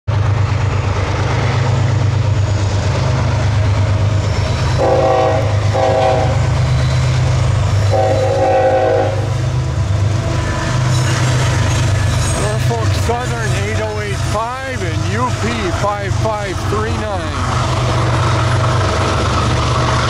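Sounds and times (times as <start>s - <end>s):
diesel locomotives droning: 0.1s - 20.0s
locomotive horn blasts: 4.8s - 6.5s, 7.8s - 9.4s.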